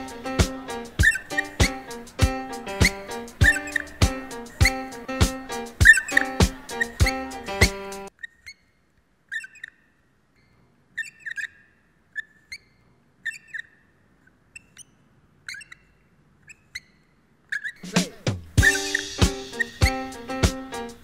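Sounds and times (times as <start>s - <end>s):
short high chirps: 18.6s - 20.2s.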